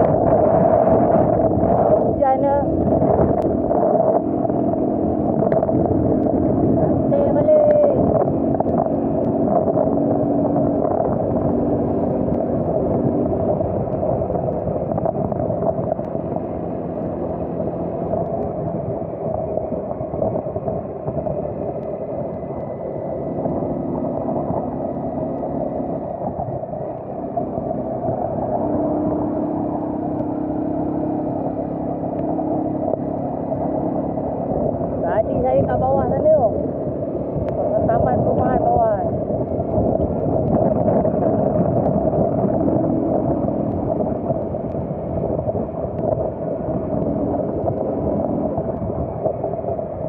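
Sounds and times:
car engine and tyres on wet road: 0:00.0 - 0:50.0
low hum: 0:00.0 - 0:50.0.

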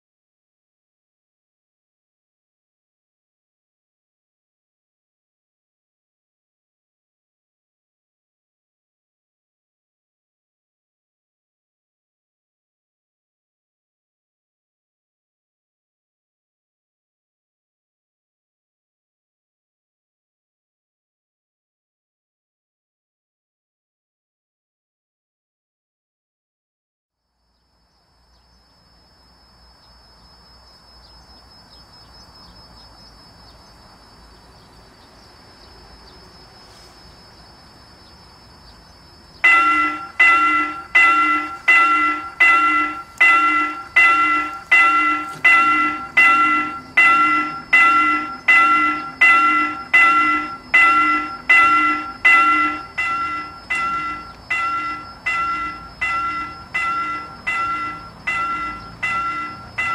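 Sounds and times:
faint outdoor background noise: 0:27.1 - 0:59.9
level crossing warning bell: 0:39.4 - 0:59.9.

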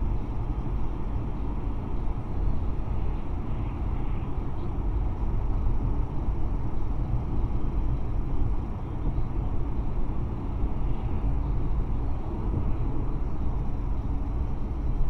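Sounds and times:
car driving heard from cabin: 0:00.0 - 0:15.0.

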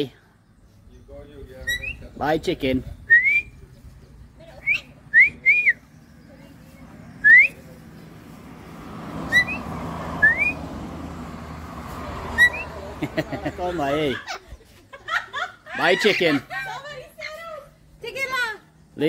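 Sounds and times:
short rising whistles: 0:09.3 - 0:10.7.

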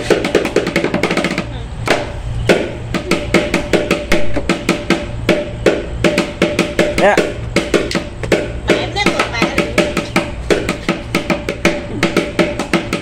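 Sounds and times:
drum roll: 0:00.0 - 0:13.0
steady drum beats: 0:00.0 - 0:13.0.

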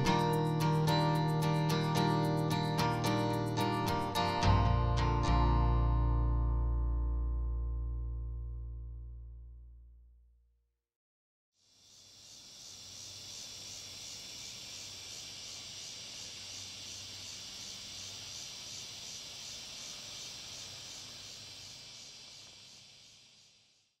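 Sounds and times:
cicadas buzzing: 0:00.0 - 0:04.4, 0:11.6 - 0:24.0.

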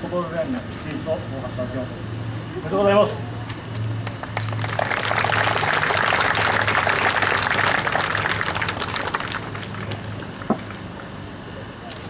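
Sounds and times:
crowd applauding: 0:04.0 - 0:11.2.

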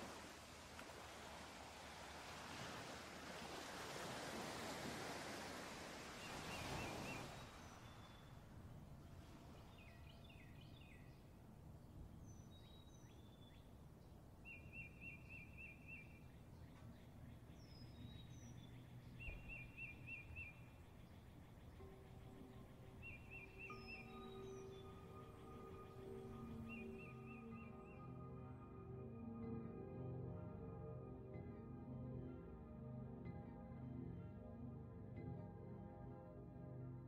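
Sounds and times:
surf washing onto beach: 0:00.0 - 0:08.0.

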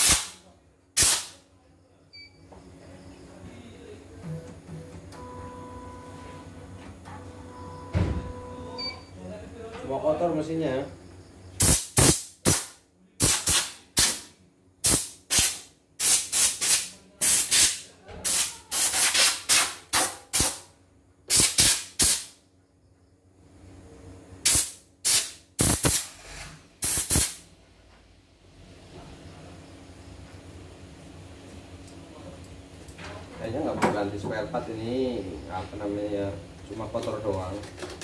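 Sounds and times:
compressed air blasts: 0:00.0 - 0:00.4, 0:01.0 - 0:01.4, 0:11.6 - 0:20.7, 0:21.3 - 0:22.4, 0:24.4 - 0:27.4.

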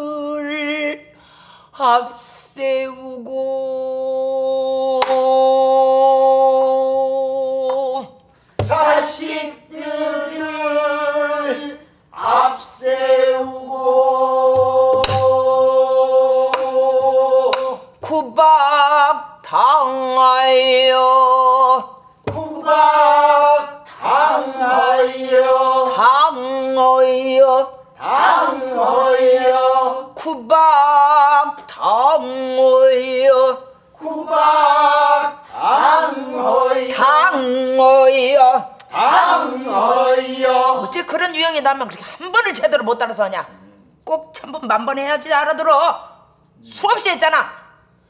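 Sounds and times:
barrel drum struck with stick: 0:14.6 - 0:15.3.

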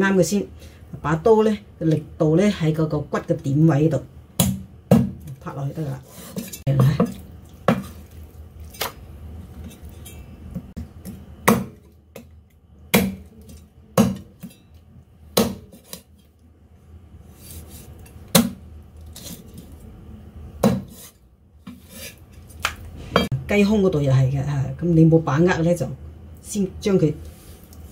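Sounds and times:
cleaver chopping on wooden block: 0:12.9 - 0:13.2, 0:15.4 - 0:16.0.

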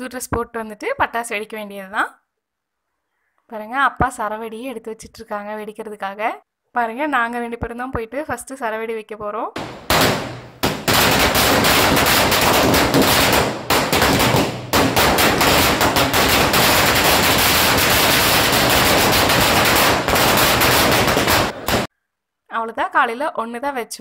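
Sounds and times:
firecrackers banging: 0:09.6 - 0:21.9.

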